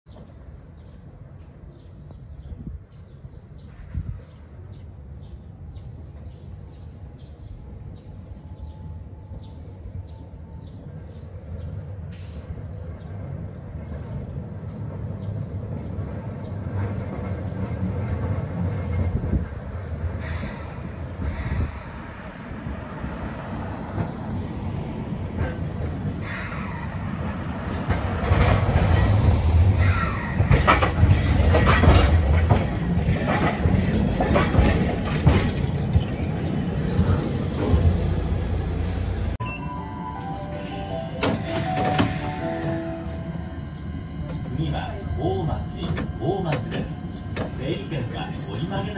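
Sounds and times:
tram rumbling: 0:00.1 - 0:48.9
wheels clattering on rails: 0:25.2 - 0:37.9, 0:45.6 - 0:48.9.

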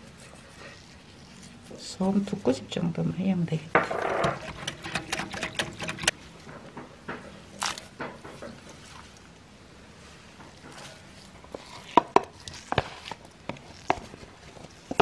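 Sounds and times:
whisk clicking against glass bowl: 0:04.3 - 0:06.1.

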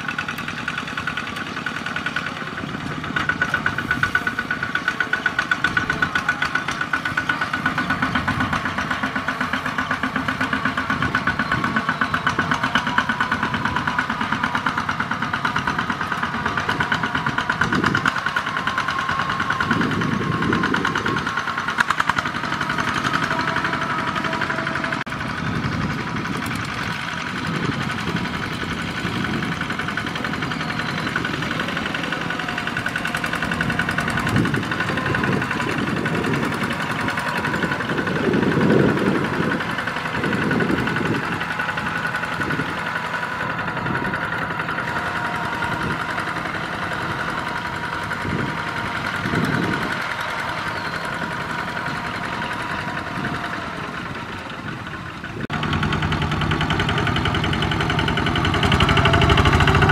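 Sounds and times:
diesel engine chugging: 0:00.0 - 0:59.9.

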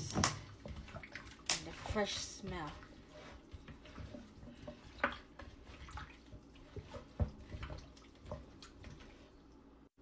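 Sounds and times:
sharp wet slaps: 0:00.0 - 0:01.8
chicken squelching in liquid: 0:00.0 - 0:09.7.

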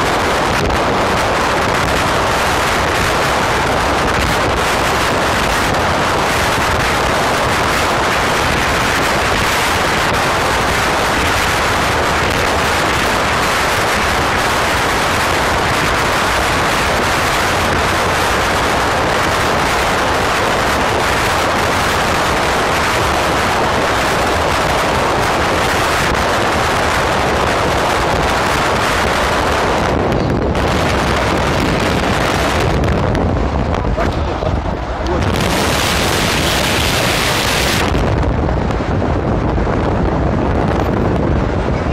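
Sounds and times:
car roaring at speed: 0:00.0 - 0:41.9
road and wind noise in tunnel: 0:00.0 - 0:41.9.

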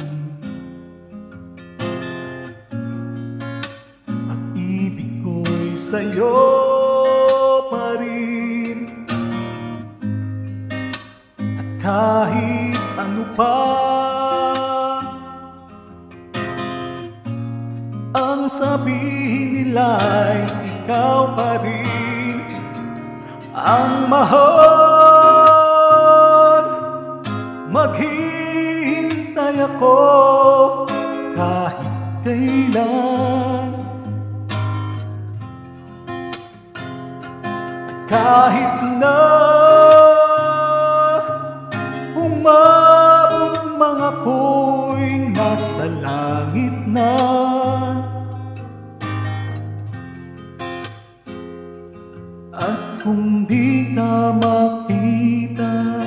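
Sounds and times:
karaoke backing track: 0:00.0 - 0:00.6, 0:03.4 - 0:09.9, 0:10.7 - 0:15.8, 0:18.0 - 0:35.4, 0:37.4 - 0:49.2, 0:52.5 - 0:56.0
man singing a ballad: 0:00.0 - 0:00.8, 0:04.1 - 0:10.0, 0:11.4 - 0:15.9, 0:18.0 - 0:34.4, 0:37.9 - 0:48.6, 0:52.5 - 0:56.0
acoustic guitar strumming: 0:00.0 - 0:56.0.

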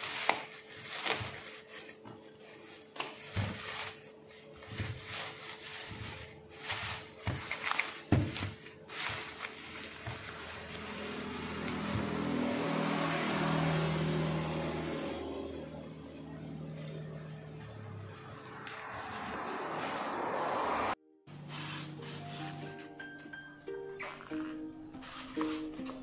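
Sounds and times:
plastic bag crinkling: 0:00.0 - 0:12.4
vehicle engine running: 0:09.2 - 0:21.8.

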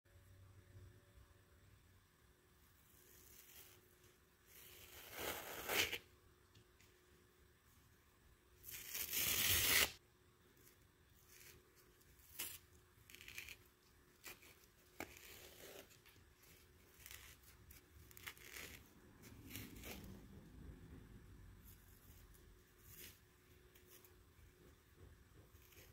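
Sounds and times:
sponge ripping: 0:04.5 - 0:06.1, 0:08.6 - 0:10.0, 0:11.2 - 0:20.2.

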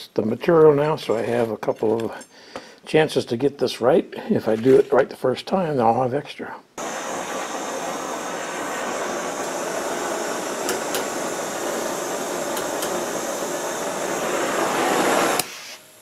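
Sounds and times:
gas torch hissing: 0:06.8 - 0:16.0.

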